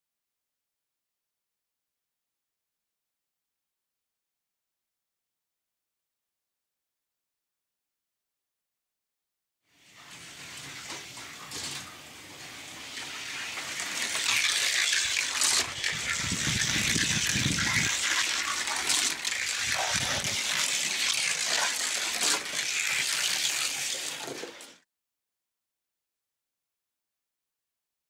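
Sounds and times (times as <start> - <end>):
toy car wheels rushing hiss: 12.6 - 24.8.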